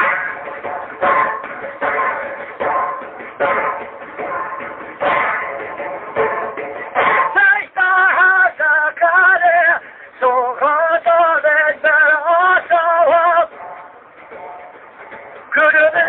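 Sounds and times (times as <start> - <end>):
man singing devotional song: 7.3 - 13.5, 15.5 - 16.0.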